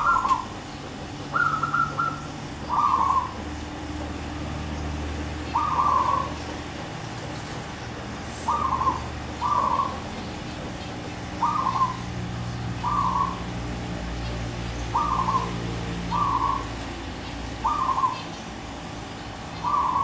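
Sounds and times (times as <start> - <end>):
dove cooing: 0.0 - 18.4, 19.5 - 20.0
low steady hum: 0.0 - 20.0.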